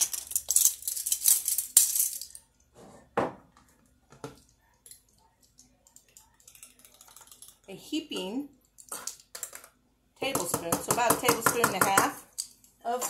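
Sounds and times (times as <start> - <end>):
plastic measuring spoons rattling: 0.0 - 2.5.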